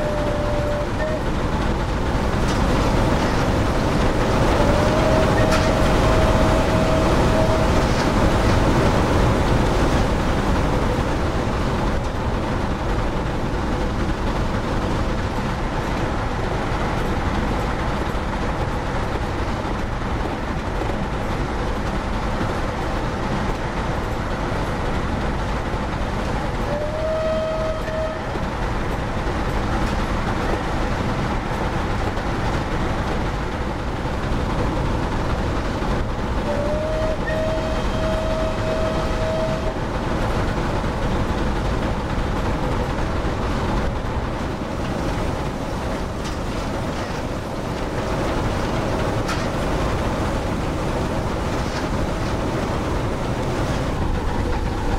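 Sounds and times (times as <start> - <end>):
steam whistle: 0.0 - 1.2, 4.6 - 8.0, 26.7 - 28.4, 36.4 - 39.8
model locomotive running on track: 0.0 - 54.9.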